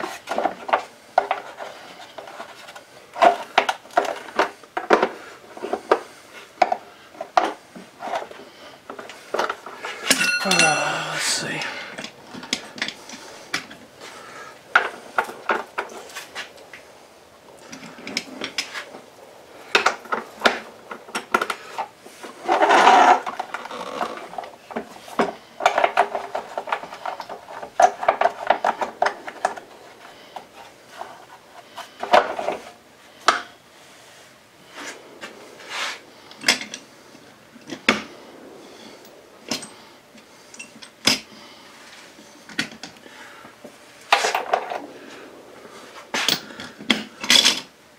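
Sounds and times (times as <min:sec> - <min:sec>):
metal tools clinking: 0:10.0 - 0:11.8.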